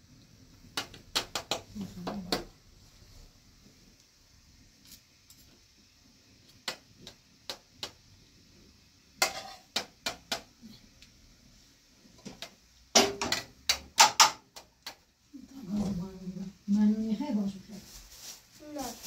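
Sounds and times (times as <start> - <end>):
metal spoons clinking on a pan: 9.2 - 9.9.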